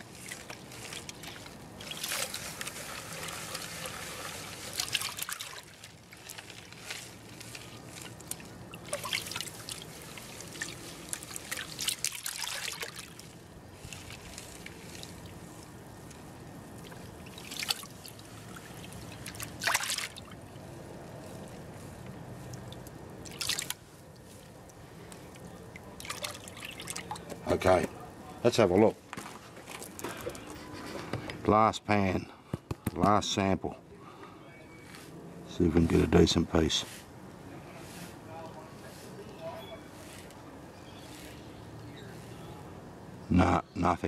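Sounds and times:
water splashing and pouring: 0.0 - 20.6, 22.4 - 24.6, 25.2 - 27.3
water sloshing in a pan: 0.0 - 20.7, 21.4 - 27.4.

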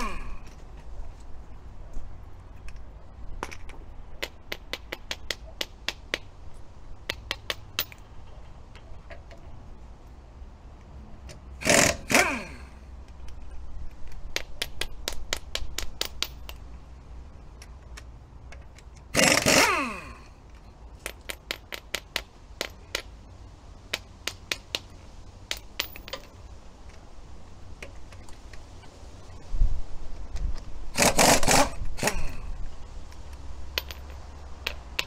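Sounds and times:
pneumatic impact wrench bursts: 0.0 - 0.5, 11.6 - 12.9, 19.1 - 20.4, 30.9 - 32.6.

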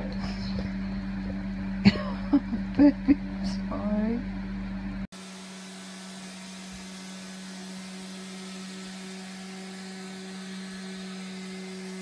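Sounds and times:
robot vacuum cleaner running: 5.2 - 12.0.

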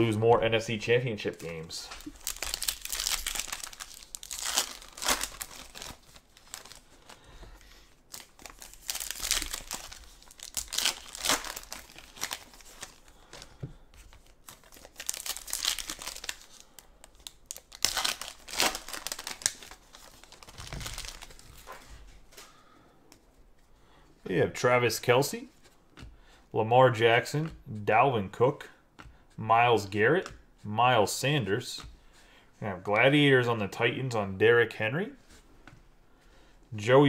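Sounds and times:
wrappers crinkling and tearing: 1.4 - 7.3, 8.0 - 13.5, 14.1 - 22.1.

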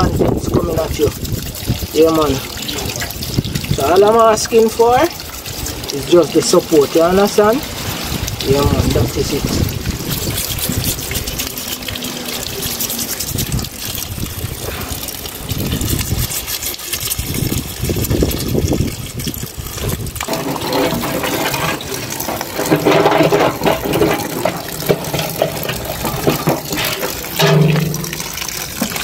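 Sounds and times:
water splashing into a container: 0.0 - 29.0.

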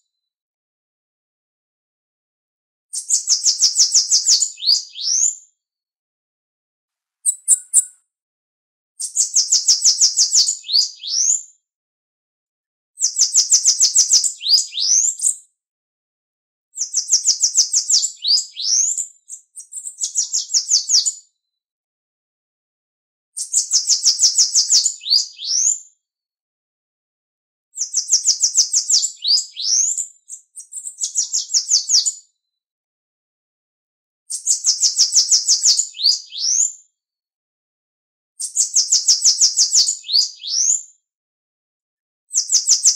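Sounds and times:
bird singing: 7.2 - 8.0.

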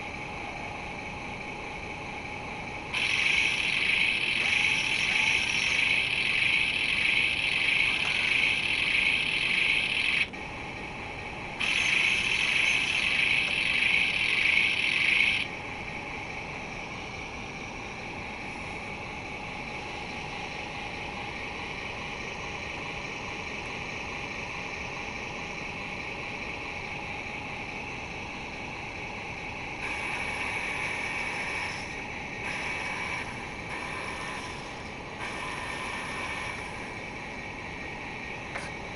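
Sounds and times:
faint steady hum: 0.0 - 38.9
electric motor whirring: 3.0 - 10.3, 11.6 - 15.4.

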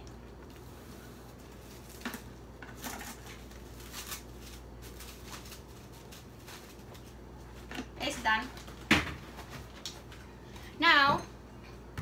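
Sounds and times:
plastic cling wrap crinkling: 1.2 - 7.7.

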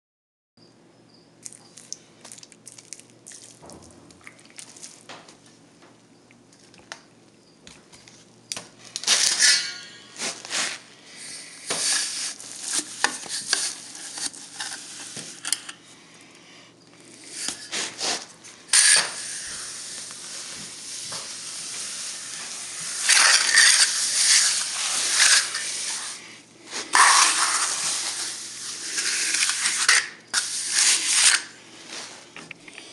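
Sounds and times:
brush scrubbing cement: 17.6 - 32.1.

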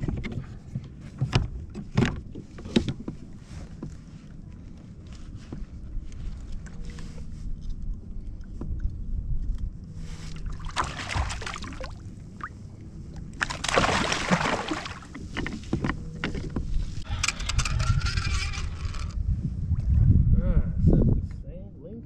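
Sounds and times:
fish splashing in water: 10.3 - 12.7, 13.4 - 15.2
low rumble: 16.0 - 22.0.

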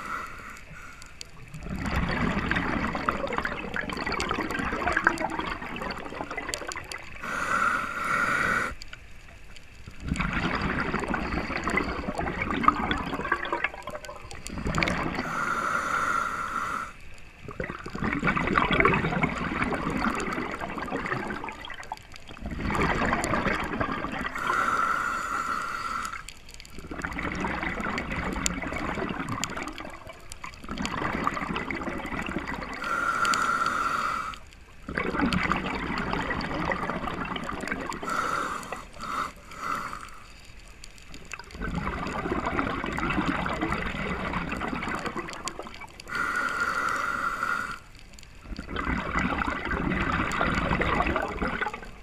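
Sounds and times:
regulator hissing inhale: 0.0 - 1.4, 7.2 - 8.9, 15.2 - 17.1, 24.3 - 26.4, 32.8 - 34.5, 38.0 - 40.6, 46.0 - 47.9
exhaled bubbles gurgling: 0.0 - 52.0.

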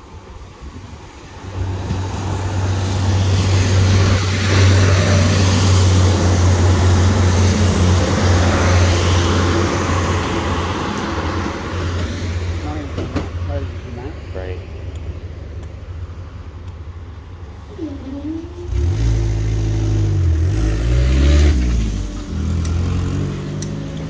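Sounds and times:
wheels rushing on rail: 0.0 - 14.3, 16.4 - 24.0
train engine hum: 0.0 - 19.0.

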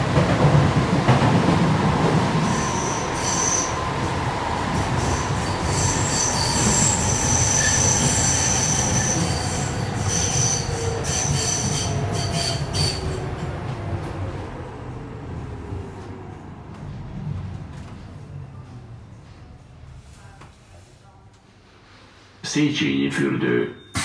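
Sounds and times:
metro car low rumble: 0.0 - 22.4
high-pitched metallic squeals: 5.0 - 13.2.

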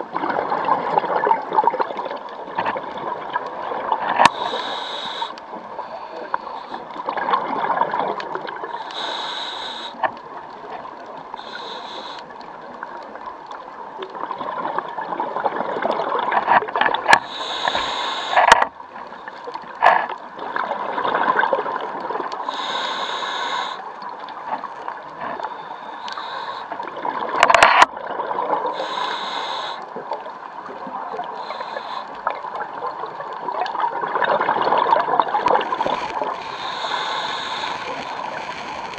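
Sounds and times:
bubbles gurgling underwater: 0.0 - 4.2, 6.9 - 8.8, 14.1 - 17.1, 20.3 - 22.4, 26.8 - 28.8, 32.2 - 36.4
diver breathing through regulator: 4.2 - 6.9, 8.7 - 10.1, 11.4 - 12.4, 17.2 - 18.7, 22.4 - 23.9, 25.2 - 27.0, 28.7 - 30.0, 31.2 - 32.3, 35.8 - 38.8.

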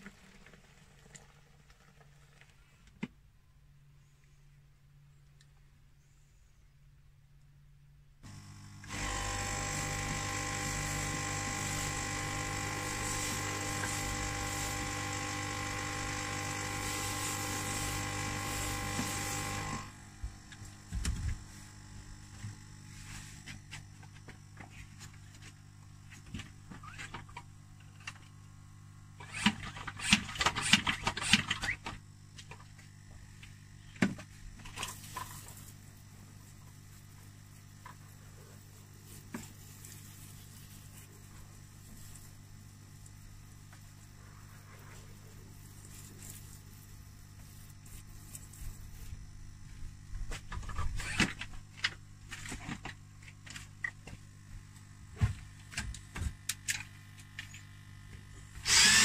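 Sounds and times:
spray extractor running: 8.2 - 24.1, 34.7 - 50.4, 58.6 - 59.0.

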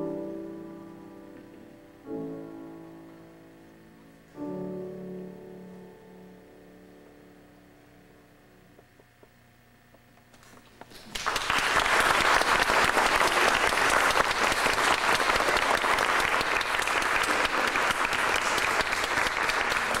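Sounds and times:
audience applauding: 10.9 - 20.0.

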